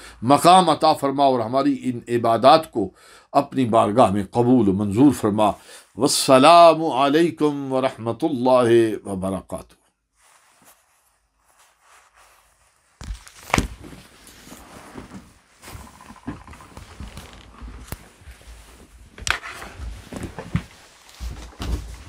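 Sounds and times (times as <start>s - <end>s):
clothes rustling: 10.0s - 22.0s.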